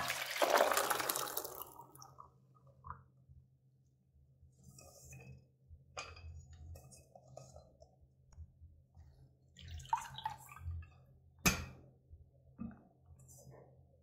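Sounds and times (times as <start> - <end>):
water dripping: 0.0 - 3.1, 9.6 - 11.0.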